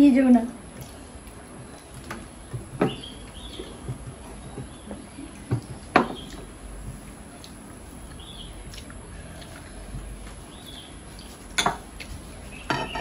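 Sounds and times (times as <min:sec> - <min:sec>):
plates and bowls clicking: 0:12.7 - 0:13.0.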